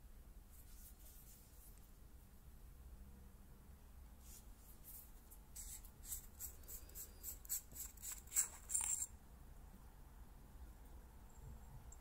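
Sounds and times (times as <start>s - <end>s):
screw threads scraping: 5.6s - 9.1s.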